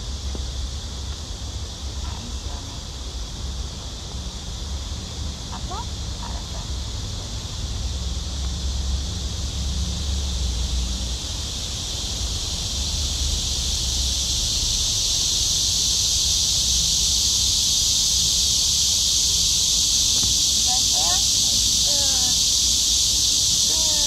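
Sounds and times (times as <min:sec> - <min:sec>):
cicadas droning: 0:00.0 - 0:24.0.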